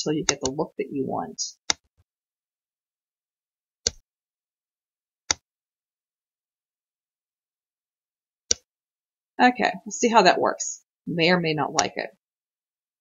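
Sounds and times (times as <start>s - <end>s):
computer mouse clicks: 0.2s - 0.6s, 11.8s - 12.0s.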